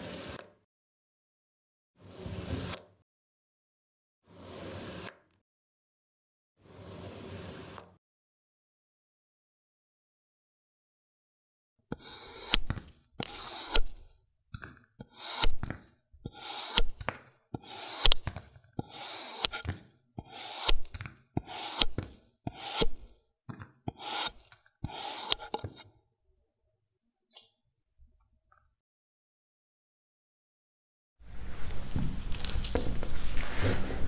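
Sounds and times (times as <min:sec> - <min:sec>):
blade cutting sand: 0:12.0 - 0:14.0, 0:15.0 - 0:15.7, 0:16.3 - 0:23.1, 0:23.9 - 0:25.7.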